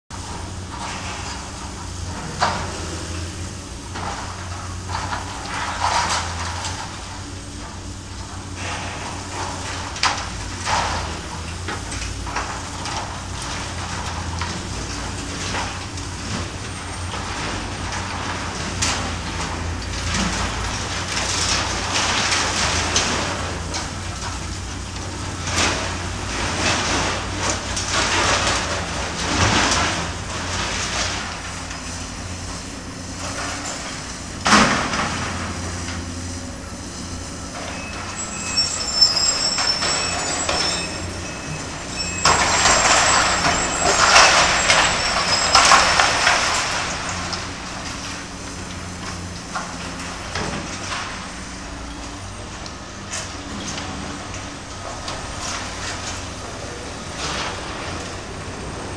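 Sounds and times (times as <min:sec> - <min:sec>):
excavator diesel engine running: 0:00.1 - 0:58.9
high squealing: 0:37.4 - 0:46.7.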